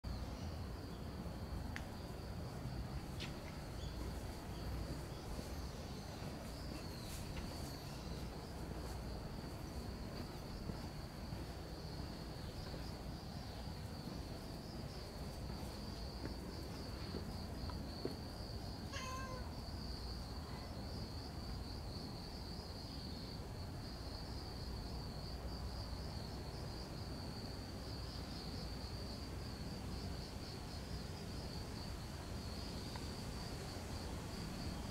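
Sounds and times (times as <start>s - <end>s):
insects trilling: 0.1s - 34.9s
cat meow: 18.9s - 19.6s.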